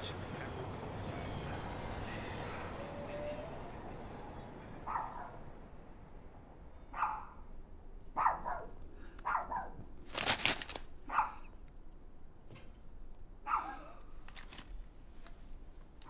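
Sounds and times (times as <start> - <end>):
dog barking: 4.8 - 5.4, 6.9 - 7.4, 8.2 - 9.8, 11.1 - 11.5, 13.4 - 14.0
newspaper pages crackling: 10.0 - 11.0, 14.2 - 16.0.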